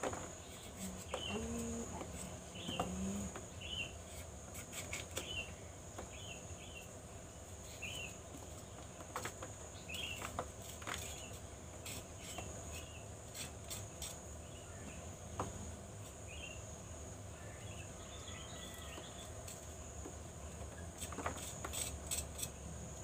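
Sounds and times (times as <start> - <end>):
bird chirping: 0.4 - 1.9, 2.5 - 4.0, 5.2 - 6.9, 9.7 - 10.3
knife cutting fruit: 0.4 - 5.4, 20.9 - 22.6.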